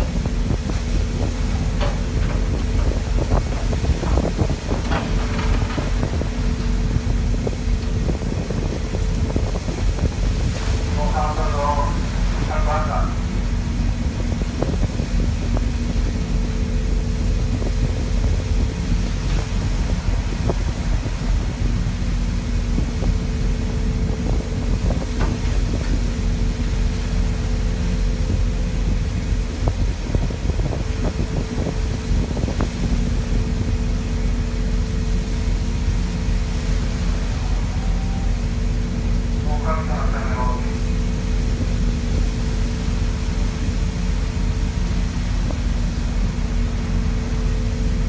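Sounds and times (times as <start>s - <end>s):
wind buffeting microphone: 0.0s - 39.4s
ship engine droning: 0.0s - 48.0s.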